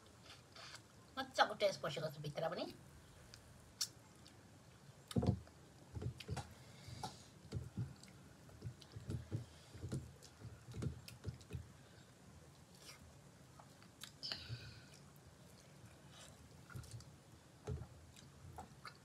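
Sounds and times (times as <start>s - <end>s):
wet chewing: 12.5s - 17.1s.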